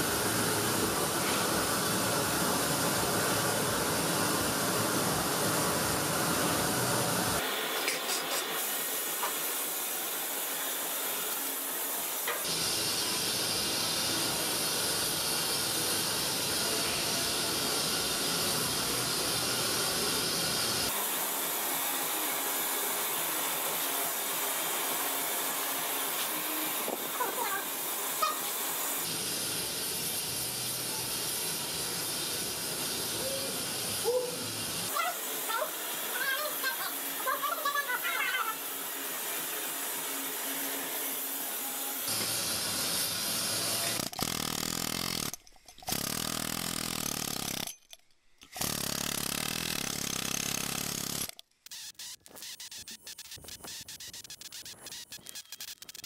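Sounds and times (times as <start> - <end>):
furnace burner hissing: 0.0 - 44.2.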